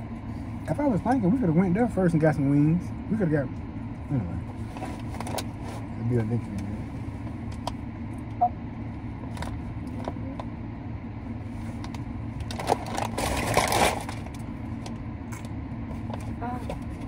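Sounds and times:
low hum inside car: 0:00.0 - 0:17.0
paper bag rustling: 0:12.5 - 0:14.3.

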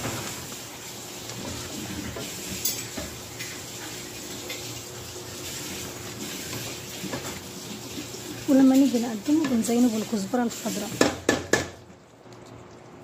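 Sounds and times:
wooden spoon stirring: 0:00.1 - 0:11.9
sauce bubbling in pot: 0:00.1 - 0:13.0
spoon knocking against pot: 0:11.0 - 0:11.8.

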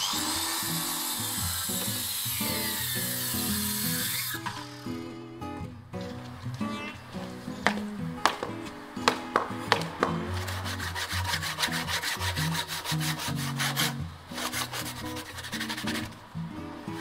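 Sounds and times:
handsaw rasping through wood: 0:00.0 - 0:04.9, 0:09.1 - 0:16.2
sharp knocks: 0:07.2 - 0:10.4.

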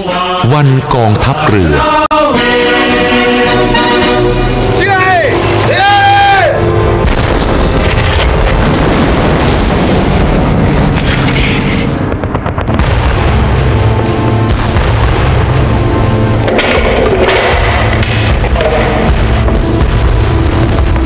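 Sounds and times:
music: 0:00.0 - 0:21.0
heavy booming explosions: 0:06.7 - 0:21.0
low rumble: 0:07.0 - 0:21.0.

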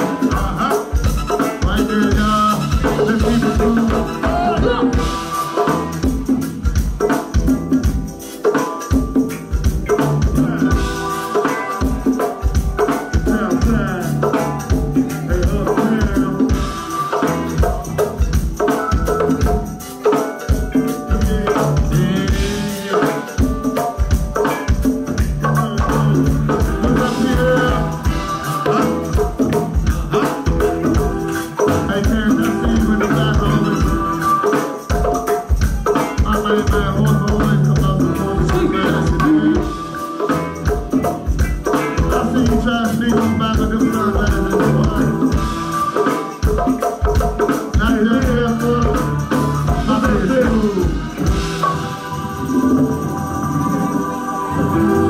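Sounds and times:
live band music: 0:00.0 - 0:55.0
steady drum beat: 0:00.0 - 0:55.0.

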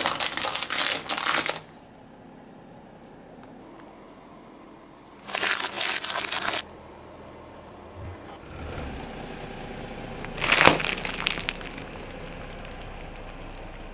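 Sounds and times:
sharp crack of packet: 0:00.0 - 0:01.7, 0:05.2 - 0:06.7, 0:10.4 - 0:13.9
tyre crunching ornaments: 0:00.0 - 0:01.8, 0:05.1 - 0:06.7, 0:10.3 - 0:13.9
tyre rolling rumble: 0:08.0 - 0:09.1.

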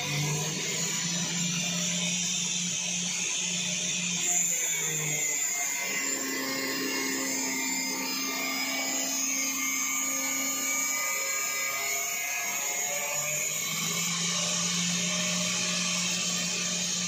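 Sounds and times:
cut-off wheel grinding steel: 0:00.0 - 0:17.0.

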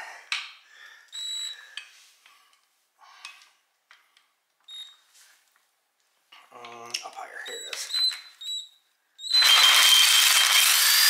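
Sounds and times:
impact wrench whining: 0:07.5 - 0:11.0.

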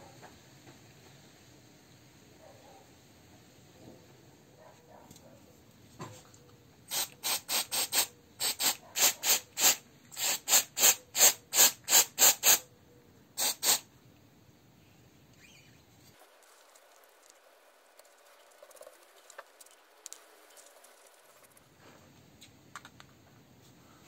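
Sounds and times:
aerosol spray can hissing: 0:06.9 - 0:12.6, 0:13.4 - 0:13.8.

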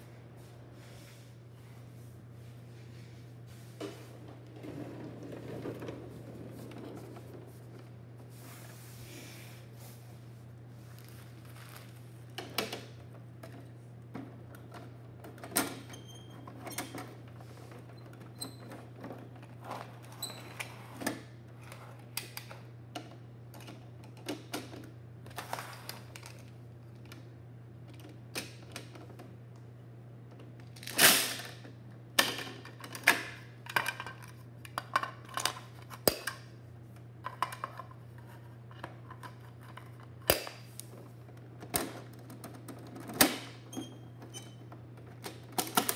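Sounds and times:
steady low hum: 0:00.0 - 0:15.5.

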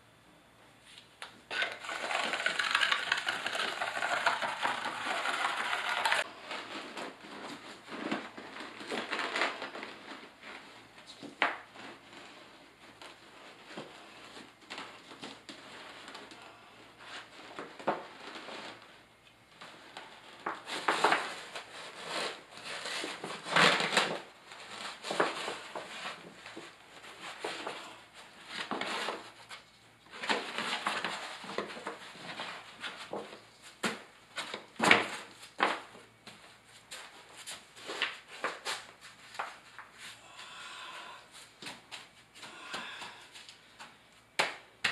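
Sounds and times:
sheet membrane rustling: 0:01.5 - 0:44.9
trowel scraping mortar: 0:01.6 - 0:06.3.

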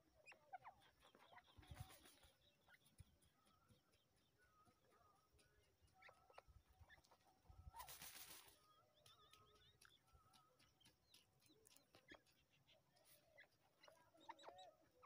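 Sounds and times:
thin bird chirps: 0:00.0 - 0:15.0
rustle of flicked dirt: 0:07.7 - 0:10.0.

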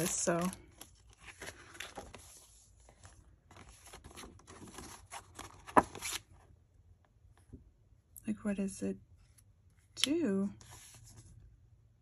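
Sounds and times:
paper and metal rustling: 0:00.0 - 0:03.0.

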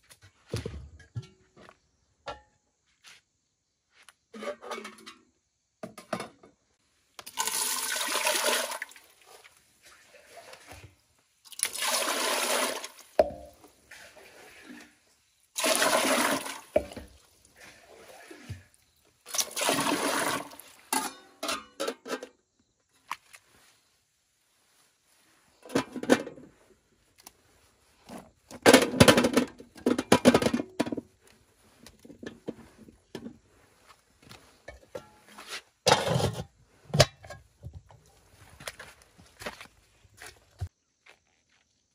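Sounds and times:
water pouring and splashing: 0:07.2 - 0:21.2.

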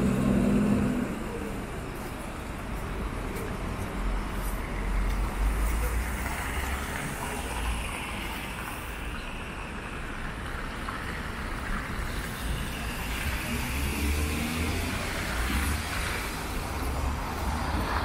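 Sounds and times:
engine rumble: 0:00.0 - 0:07.9
tyres hissing on wet road: 0:04.0 - 0:18.0.

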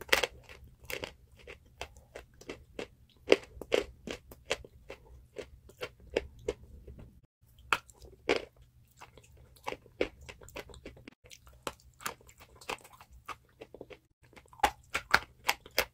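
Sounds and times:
chewing chalk crunches: 0:07.6 - 0:15.9.

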